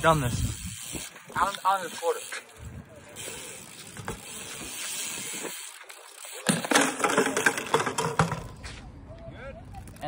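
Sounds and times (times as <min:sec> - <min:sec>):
bike clattering and scraping: 0:00.0 - 0:10.0
bike tyres rolling on concrete: 0:00.0 - 0:10.0
bike crashing on concrete: 0:03.1 - 0:08.7.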